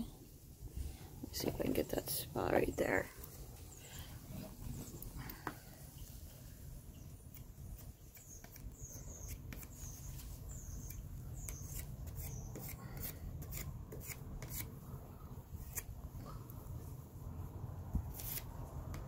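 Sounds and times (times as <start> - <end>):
putty knife scraping wood: 10.8 - 14.7.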